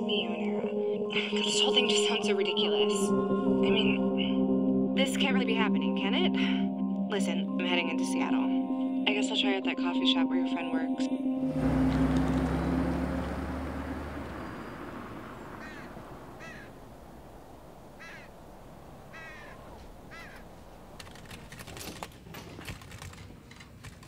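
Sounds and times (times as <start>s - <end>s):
crow cawing: 15.1s - 21.2s
computer keyboard typing: 21.0s - 24.0s.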